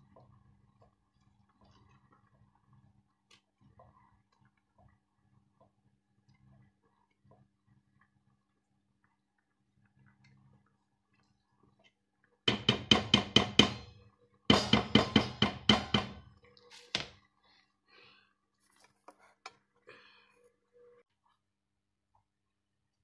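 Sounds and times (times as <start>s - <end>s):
utensil knocking on metal pot rim: 12.5s - 13.8s, 14.5s - 16.3s.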